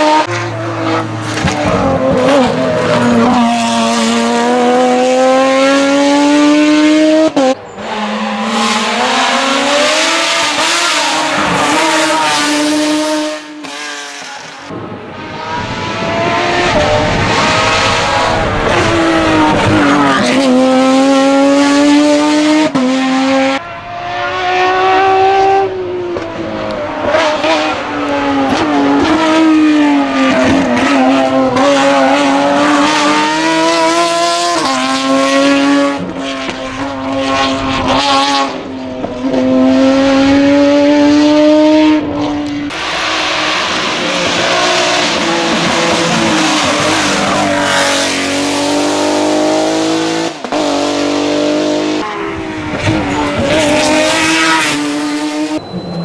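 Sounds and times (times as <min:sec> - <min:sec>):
race car engine at full throttle: 0:00.0 - 0:56.0.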